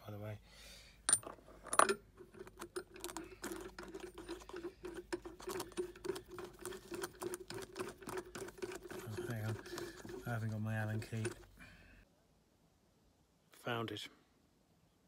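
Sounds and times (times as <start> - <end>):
metal screw clicks and ticks: 1.1 - 11.5.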